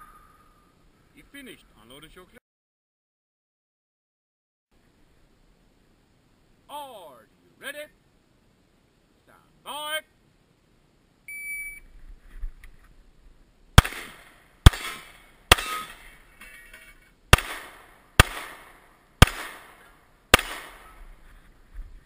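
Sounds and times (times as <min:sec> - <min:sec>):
shot timer beep: 0:11.3 - 0:11.8
pistol shots: 0:13.8 - 0:16.1, 0:17.3 - 0:21.0.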